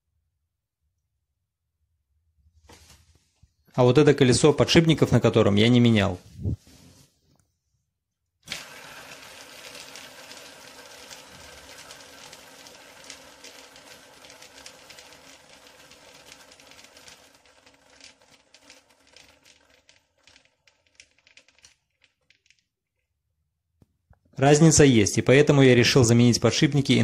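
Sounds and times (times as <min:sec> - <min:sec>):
scooter wheel whirring on bearings: 0:08.5 - 0:22.6.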